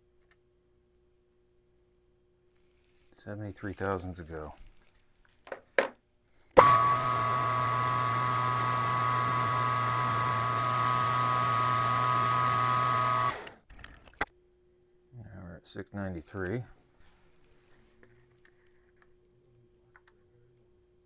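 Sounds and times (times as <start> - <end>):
metal lathe humming and whining: 6.6 - 13.5.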